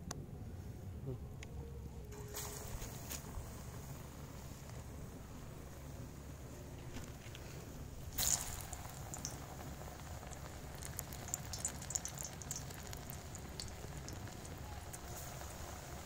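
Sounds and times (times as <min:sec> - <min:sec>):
food deep-frying in hot oil: 0:07.9 - 0:16.0.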